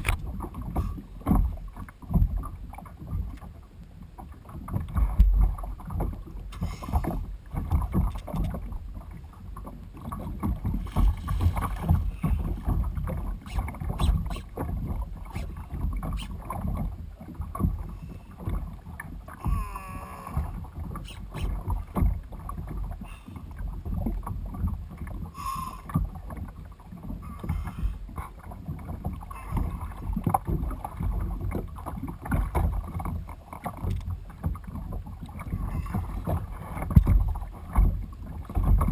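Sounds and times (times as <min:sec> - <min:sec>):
water lapping against kayak hull: 0:00.0 - 0:38.9.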